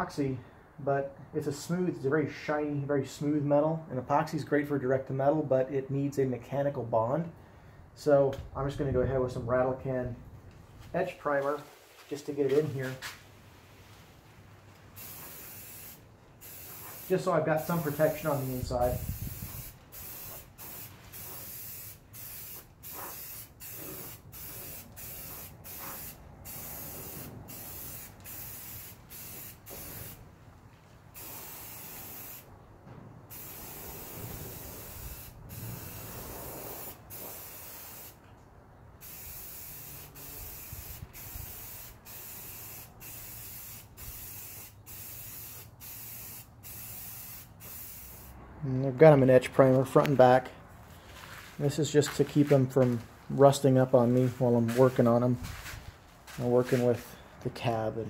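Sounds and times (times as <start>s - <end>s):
spray can hissing: 15.0s - 30.2s, 31.2s - 32.5s, 33.3s - 38.2s, 39.0s - 48.4s.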